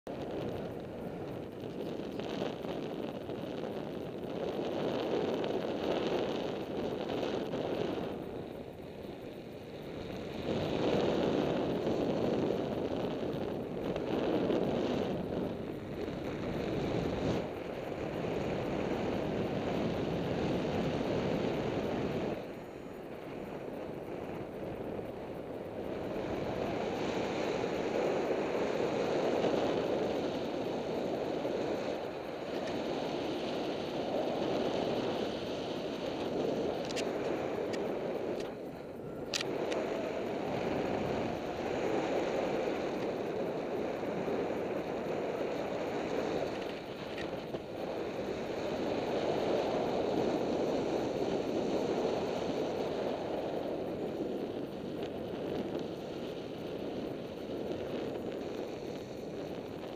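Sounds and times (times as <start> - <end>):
wind rushing over microphone: 0.1 - 59.9
faint clicks: 35.9 - 40.1, 46.4 - 47.7.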